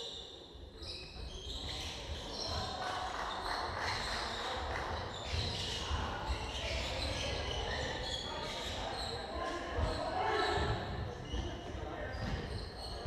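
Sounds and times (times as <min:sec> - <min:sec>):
sneakers squeaking: 0:00.8 - 0:02.8, 0:05.2 - 0:13.0.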